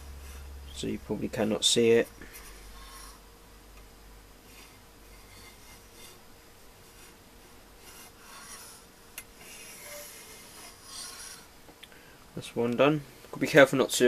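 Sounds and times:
scriber scraping metal: 4.4 - 6.2, 7.8 - 11.6
gauge sliding on surface plate: 9.4 - 11.5.

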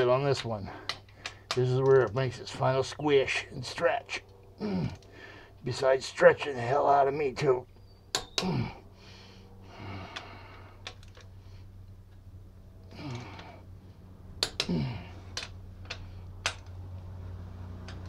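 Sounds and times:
low hum: 0.0 - 18.0
torque wrench clicks: 14.4 - 14.8.

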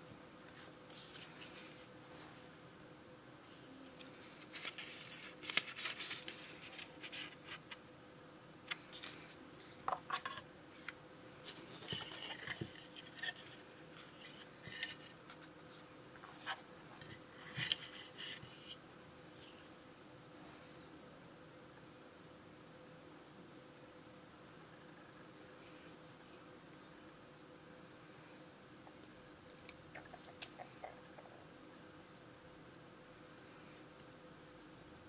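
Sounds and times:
faint steady hum: 0.0 - 35.0
paper and cardboard rustling: 0.5 - 2.4, 3.5 - 7.8, 8.8 - 15.5.

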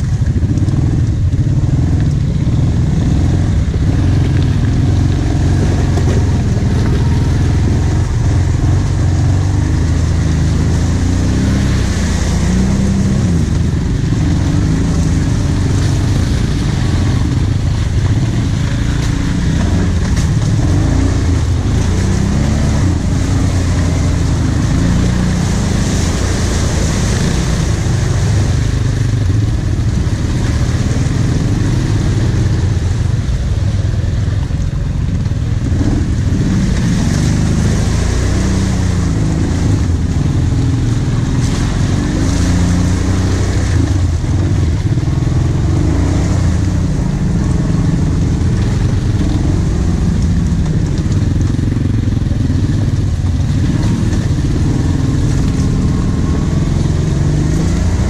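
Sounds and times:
quad engine running: 0.0 - 58.0.

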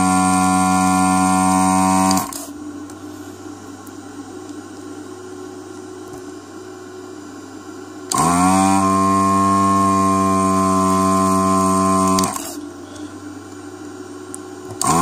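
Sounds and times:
vacuum pump whining: 0.0 - 4.2, 7.9 - 15.0.

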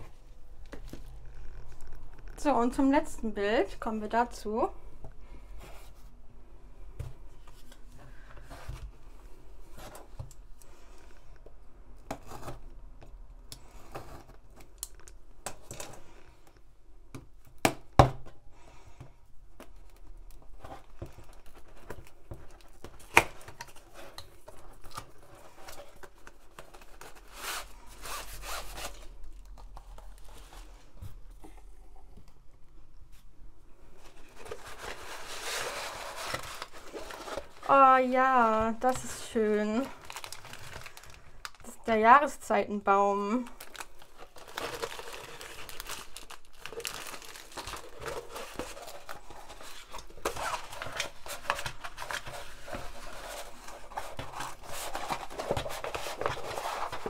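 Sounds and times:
canvas crinkling as unrolled: 34.3 - 41.8, 43.6 - 57.0.

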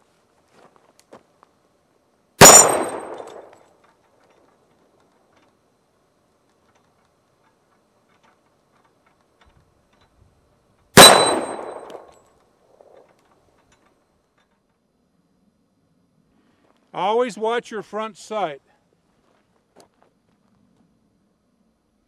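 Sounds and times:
metallic ring of steel target: 2.4 - 3.6, 11.0 - 12.2
pistol shots: 2.4 - 3.6, 11.0 - 12.2.

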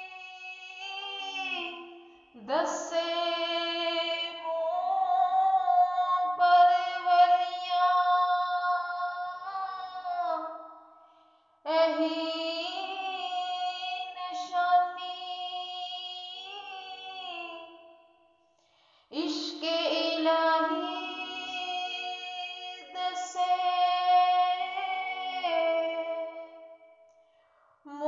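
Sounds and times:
woman singing unaccompanied: 0.0 - 10.4, 11.7 - 17.9, 19.1 - 26.8.

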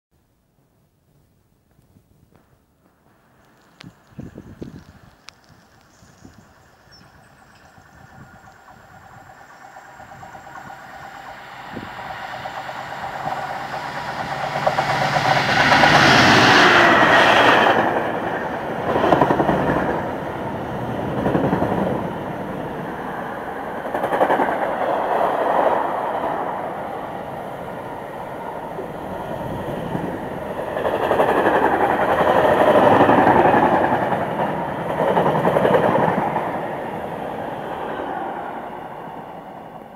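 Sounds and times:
diesel locomotive passing: 3.2 - 39.9
train wheels clattering over rails: 7.0 - 20.2, 22.9 - 26.7, 28.7 - 36.8.

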